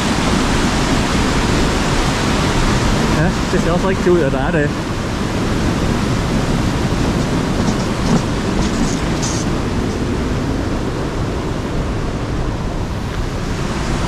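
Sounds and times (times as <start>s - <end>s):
loud steady rushing noise: 0.0s - 14.0s.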